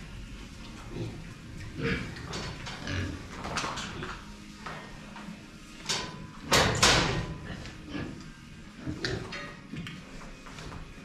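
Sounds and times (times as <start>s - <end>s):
pigs grunting: 0.8s - 4.2s, 6.5s - 9.5s
pigs shuffling in sawdust: 7.3s - 11.0s.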